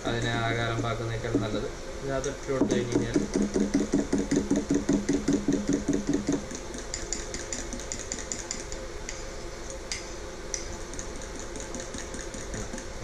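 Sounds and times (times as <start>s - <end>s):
spoon stirring in ceramic mug: 4.3s - 9.2s, 10.8s - 12.9s.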